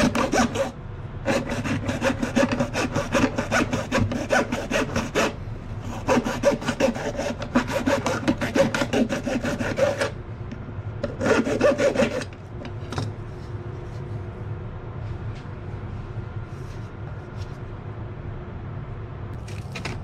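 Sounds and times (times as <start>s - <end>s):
hacksaw sawing plastic pipe: 0.0s - 10.2s, 11.0s - 12.4s.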